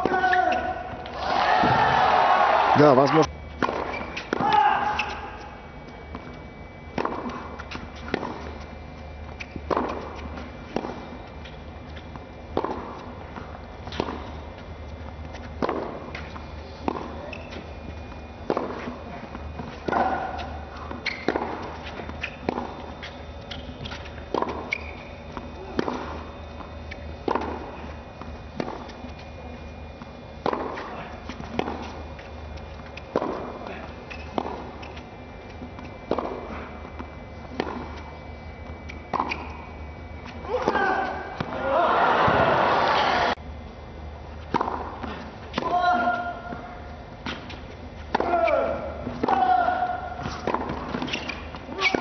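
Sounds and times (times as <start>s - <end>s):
tennis ball hit by rackets: 3.6s - 5.5s, 6.9s - 8.6s, 9.4s - 11.1s, 12.5s - 14.3s, 15.3s - 17.7s, 18.4s - 29.2s, 30.4s - 38.1s, 38.7s - 39.6s, 44.4s - 52.0s.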